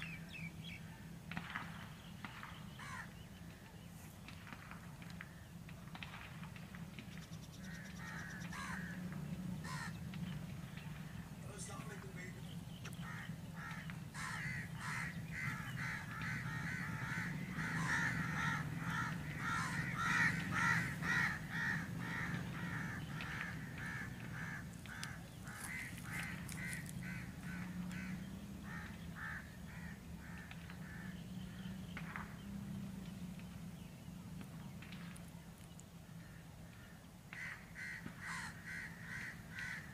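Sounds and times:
crows cawing: 0:02.3 - 0:03.2, 0:07.5 - 0:10.0, 0:10.9 - 0:32.4, 0:36.1 - 0:39.9
diesel locomotive engine hum: 0:07.8 - 0:35.6.

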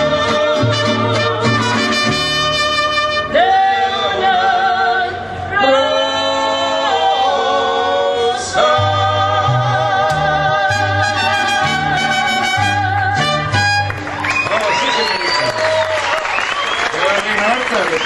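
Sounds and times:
singer holding vibrato notes: 0:00.0 - 0:14.0
mariachi band playing: 0:00.0 - 0:17.9.

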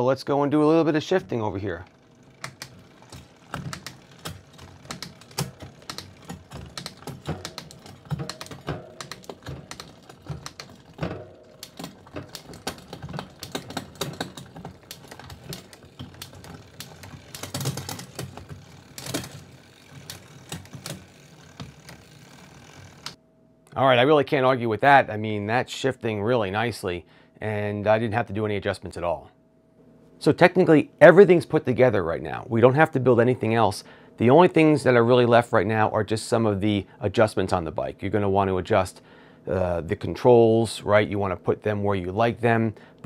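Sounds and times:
bike chain clicking over gears: 0:01.2 - 0:23.2.

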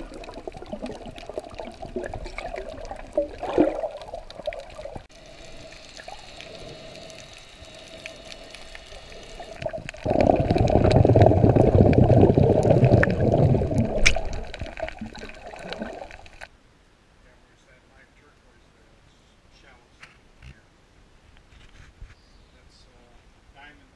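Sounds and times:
low underwater rushing: 0:00.0 - 0:16.5
muffled underwater water movement: 0:00.0 - 0:16.5.

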